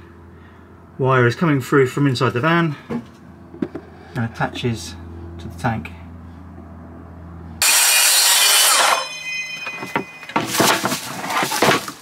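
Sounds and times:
power tool running: 7.6 - 11.2.

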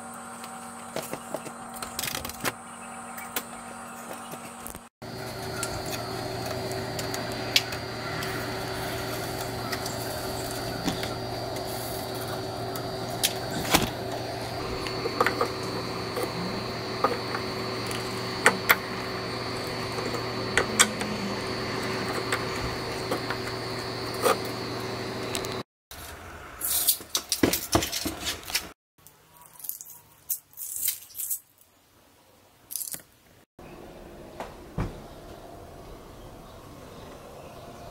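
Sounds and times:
steady hum: 0.0 - 25.7.

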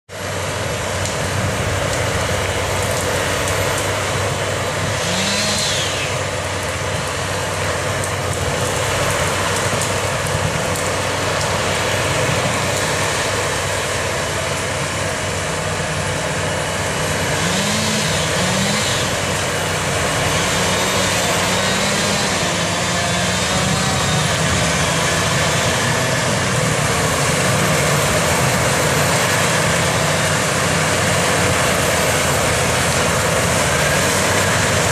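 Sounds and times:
mulcher grinding brush and soil: 0.1 - 34.9
tractor running under load: 0.1 - 34.9.

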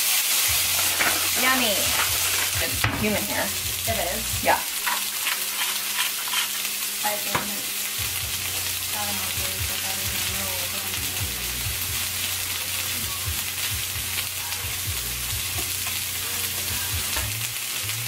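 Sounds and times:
vegetables sizzling in a skillet: 0.0 - 18.0
spatula stirring in a pan: 0.2 - 3.7, 4.8 - 7.5.

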